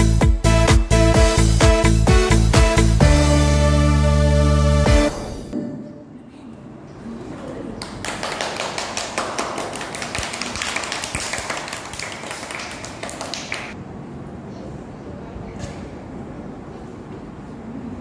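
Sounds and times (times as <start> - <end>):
group applause: 7.8 - 13.8.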